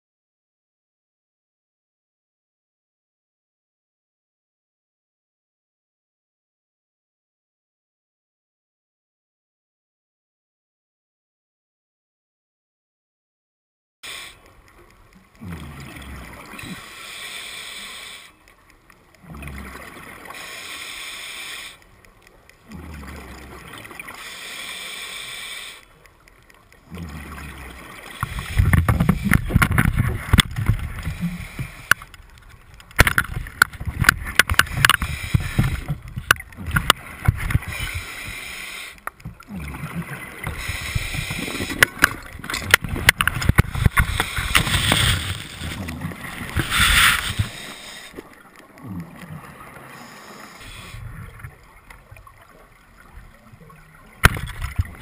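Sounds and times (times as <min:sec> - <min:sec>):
underwater bubbling hiss: 0:14.0 - 0:14.6, 0:15.4 - 0:18.6, 0:19.2 - 0:22.0, 0:22.6 - 0:26.0, 0:26.8 - 0:32.2, 0:33.4 - 0:55.0
underwater rumbling with crackles: 0:14.4 - 0:17.1, 0:18.4 - 0:20.8, 0:21.8 - 0:24.4, 0:25.9 - 0:55.0.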